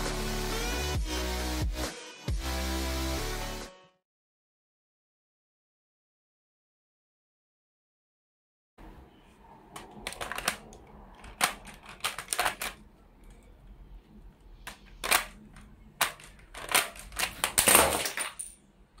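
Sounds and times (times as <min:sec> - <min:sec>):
plastic bricks clicking: 0:09.8 - 0:13.5, 0:14.6 - 0:18.6.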